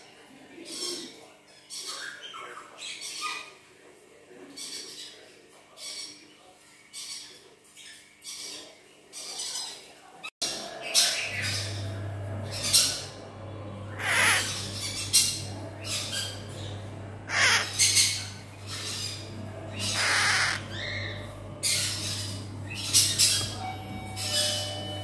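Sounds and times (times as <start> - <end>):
parrot chick squawking: 13.9 - 16.6, 17.2 - 23.6.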